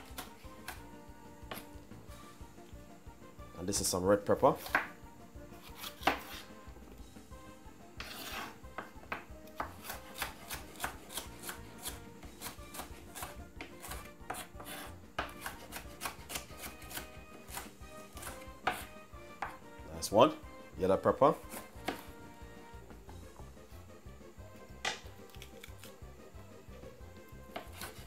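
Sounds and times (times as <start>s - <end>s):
knife scraping board: 4.6s - 4.9s, 5.6s - 6.6s, 8.0s - 8.9s, 9.5s - 19.5s, 21.4s - 22.1s, 27.5s - 28.0s
knife tapping chopping board: 4.6s - 4.9s, 8.0s - 19.6s, 24.8s - 25.1s.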